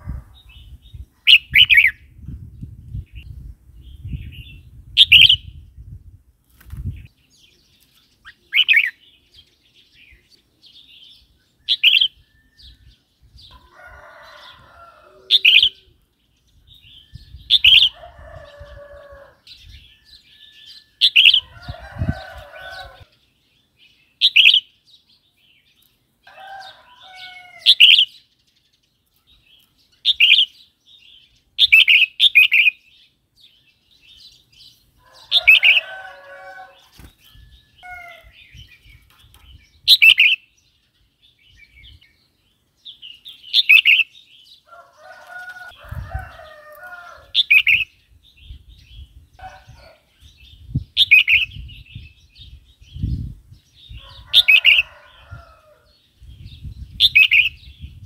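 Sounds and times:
wings fluttering: 0:06.4 - 0:07.1, 0:36.7 - 0:37.4.

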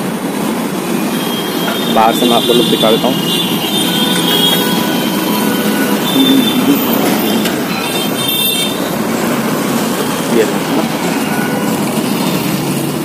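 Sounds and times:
passing vehicles: 0:00.0 - 0:13.0
brief high tones: 0:01.0 - 0:08.9.

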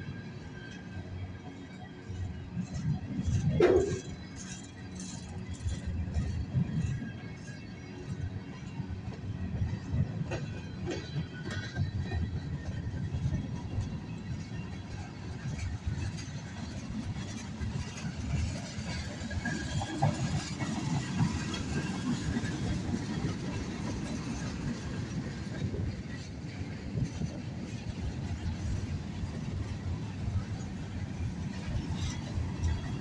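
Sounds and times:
freight train wheels rumbling on rails: 0:00.0 - 0:33.0.

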